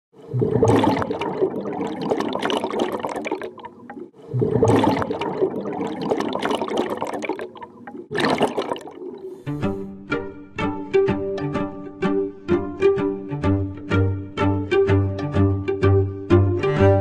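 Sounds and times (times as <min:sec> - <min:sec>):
air bubbles gurgling underwater: 0:00.3 - 0:09.4.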